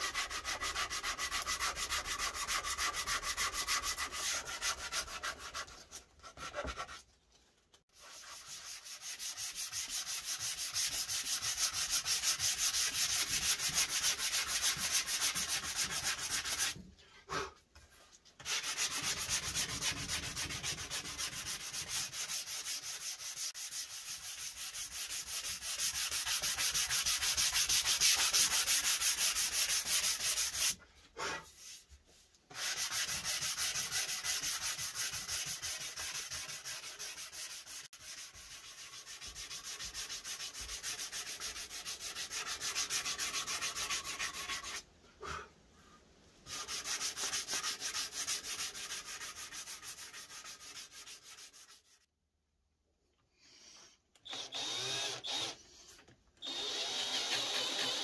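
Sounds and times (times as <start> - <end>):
sanding block on wood: 0.0 - 6.9, 8.0 - 16.8, 18.4 - 30.8, 32.5 - 44.8, 46.5 - 52.1.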